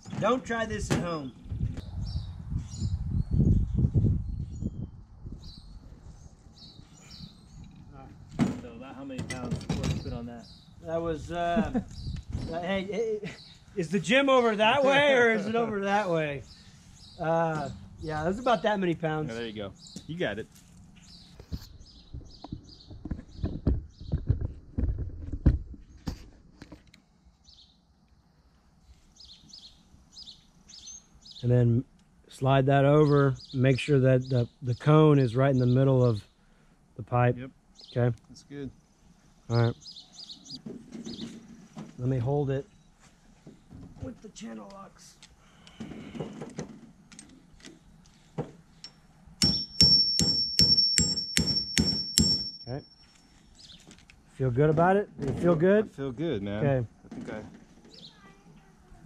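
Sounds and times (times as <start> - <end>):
metal tool clicking and knocking: 48.8 - 52.6.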